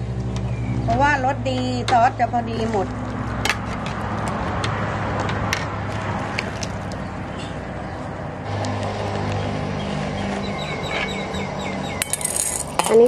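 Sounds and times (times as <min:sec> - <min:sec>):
metal clinks: 0:12.0 - 0:13.0.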